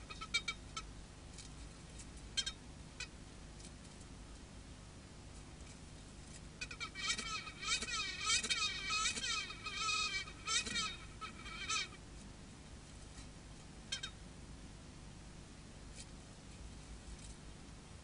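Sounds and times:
fly wings buzzing: 0:07.0 - 0:11.9.

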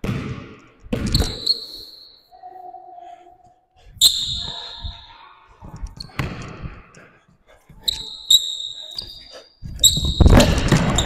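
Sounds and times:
basketball bouncing on court: 0:00.0 - 0:01.6, 0:09.8 - 0:11.0.

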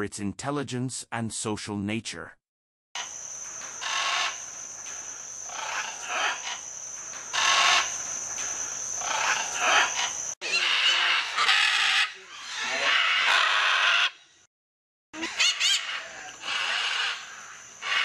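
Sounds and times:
macaws squawking: 0:03.8 - 0:04.4, 0:05.5 - 0:06.6, 0:07.3 - 0:07.9, 0:09.0 - 0:14.2, 0:15.2 - 0:18.0.

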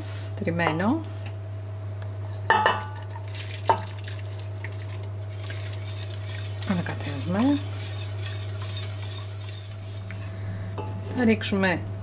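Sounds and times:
clinks against metal pot: 0:02.5 - 0:03.9
whisk stirring milk: 0:03.4 - 0:10.3.

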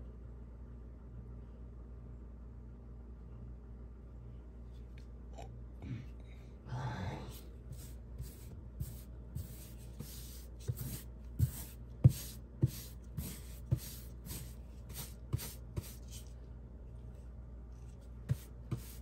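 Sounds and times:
faint steady hum: 0:00.0 - 0:19.0
paintbrush swishing on wall: 0:07.6 - 0:16.4, 0:17.8 - 0:19.0.

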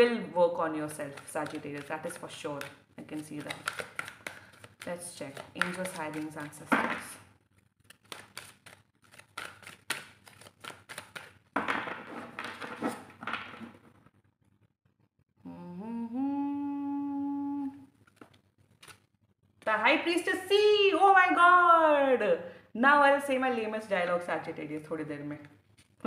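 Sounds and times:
cards being shuffled: 0:00.8 - 0:13.7, 0:18.0 - 0:19.1
woman humming: 0:15.4 - 0:17.9.

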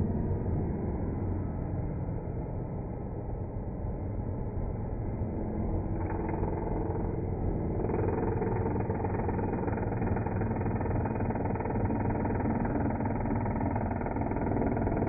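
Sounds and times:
electric tool cutting wood: 0:05.9 - 0:15.0.

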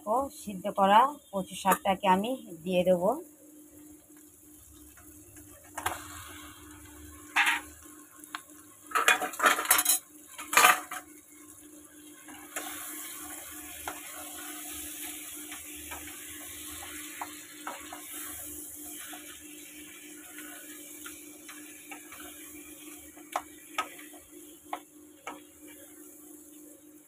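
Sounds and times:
leaves sizzling in hot oil: 0:00.0 - 0:27.0
metal utensils clanking on pan: 0:07.3 - 0:07.7, 0:08.9 - 0:11.0.

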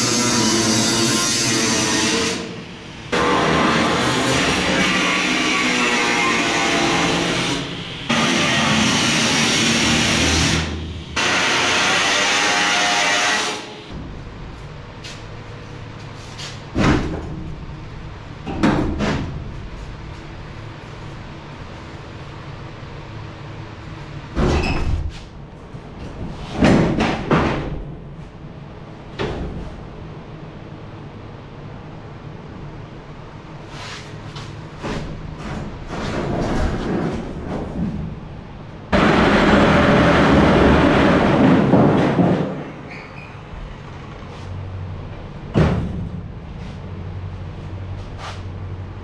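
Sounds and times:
cutoff wheel cutting steel: 0:00.0 - 0:02.6, 0:03.2 - 0:13.8.

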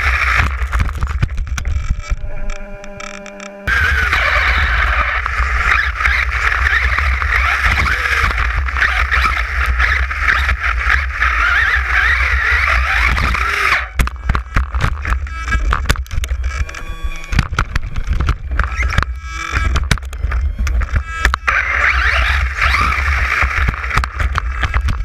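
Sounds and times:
rc car motor running: 0:00.0 - 0:25.0
rc car flipping over knocks: 0:03.7 - 0:16.2.

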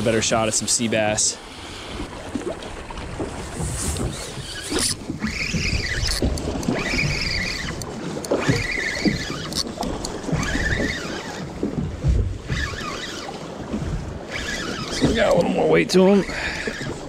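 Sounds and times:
water slapping against boat: 0:00.0 - 0:17.0
wind buffeting microphone: 0:01.6 - 0:17.0
fishing reel whirring: 0:04.0 - 0:11.6, 0:12.4 - 0:17.0.

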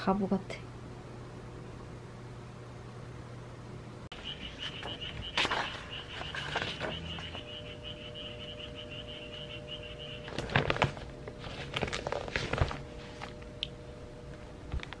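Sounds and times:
faint steady hum: 0:00.0 - 0:15.0
fast pulsing high chirp: 0:04.1 - 0:10.4
newspaper pages rustling: 0:04.6 - 0:07.5, 0:10.3 - 0:13.4.

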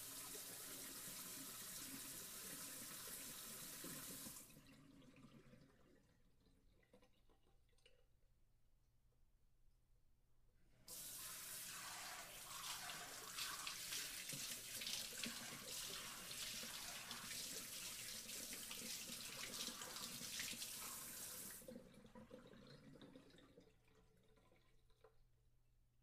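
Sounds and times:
water spraying: 0:10.9 - 0:21.6.

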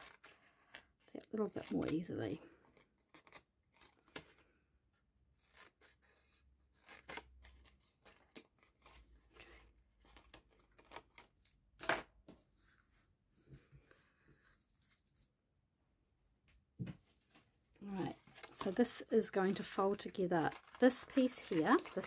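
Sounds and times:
paper handling: 0:17.9 - 0:22.0.

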